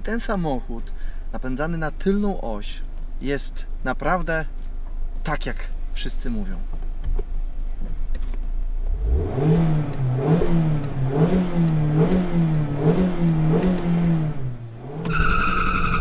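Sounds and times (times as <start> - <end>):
car engine revving: 8.7 - 16.0
high steady tyre squeal: 14.8 - 16.0.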